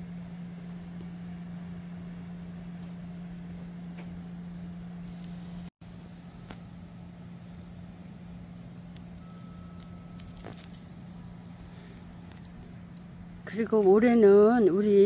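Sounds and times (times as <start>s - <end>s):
low mechanical hum: 0.0s - 15.0s
faint short high tone: 9.2s - 10.3s.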